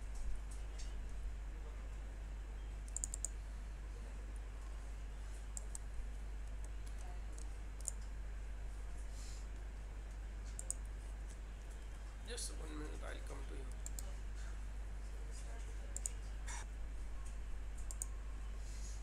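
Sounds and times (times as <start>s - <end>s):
steady low hum: 0.0s - 19.0s
computer mouse clicks: 2.9s - 3.4s, 5.5s - 8.1s, 10.5s - 11.8s, 13.7s - 14.1s, 16.0s - 16.2s, 17.8s - 18.1s.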